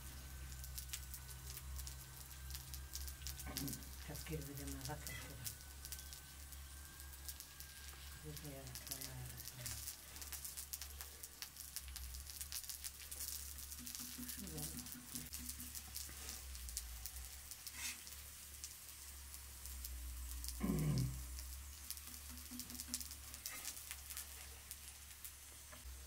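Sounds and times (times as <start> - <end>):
food sizzling on a griddle: 0.0 - 26.0
tongs scraping metal: 0.7 - 18.2.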